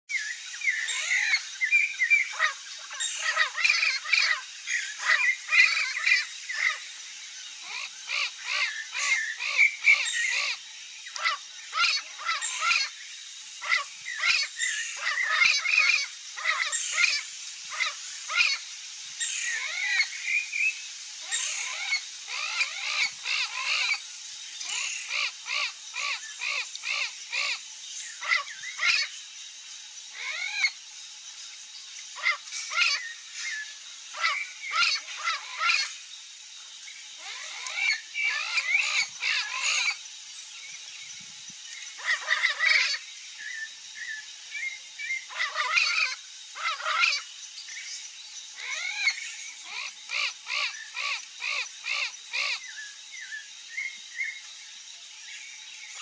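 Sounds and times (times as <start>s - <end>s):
songbirds calling and singing: 0.1s - 56.0s.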